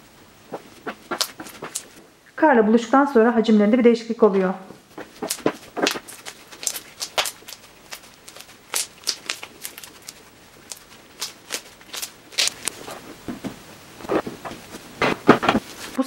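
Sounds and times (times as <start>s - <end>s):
slime crackling and popping: 0.8s - 2.0s, 5.0s - 12.8s.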